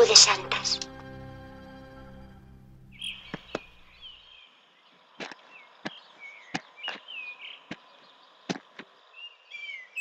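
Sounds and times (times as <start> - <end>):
background music: 0.0 - 4.1
small birds chirping: 2.8 - 10.0.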